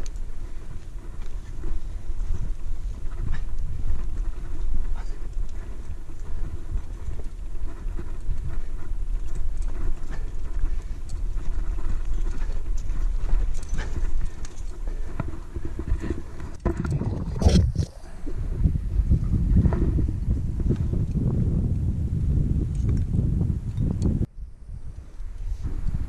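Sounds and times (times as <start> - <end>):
hands and shoes scraping rock: 0.0 - 18.2
wind rumbling on microphone: 0.0 - 26.0.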